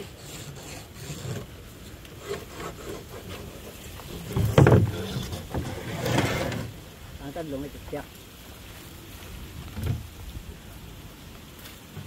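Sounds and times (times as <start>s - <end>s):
light scrapes and knocks of boards: 0.0s - 6.9s.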